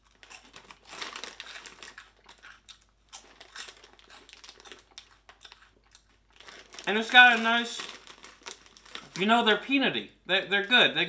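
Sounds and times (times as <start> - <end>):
snack bag crinkling: 0.0 - 9.8.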